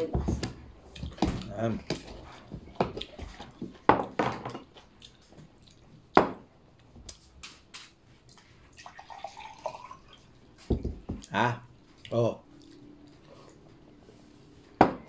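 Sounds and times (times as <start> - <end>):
water poured into a glass: 8.7 - 10.3.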